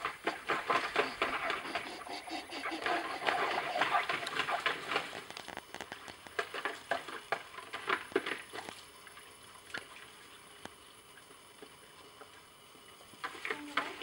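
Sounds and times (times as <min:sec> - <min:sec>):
dog splashing in water: 0:00.0 - 0:10.2.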